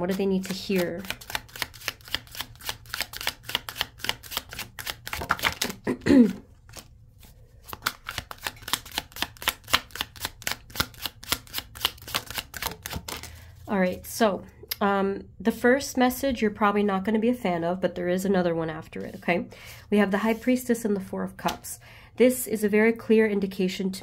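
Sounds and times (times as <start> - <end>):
cards being shuffled: 0.1 - 13.4.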